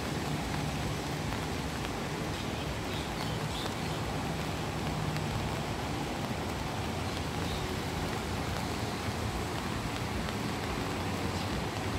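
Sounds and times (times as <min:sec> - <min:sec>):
rain on a roof: 0:00.0 - 0:11.9.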